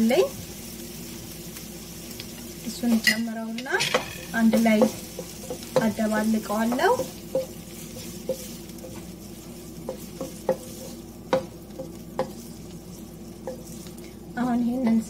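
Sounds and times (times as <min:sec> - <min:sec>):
faint sizzle: 0:00.0 - 0:15.0
spatula knocking against pan: 0:03.8 - 0:07.6, 0:09.8 - 0:12.4
wooden spatula scraping food in wok: 0:04.3 - 0:15.0.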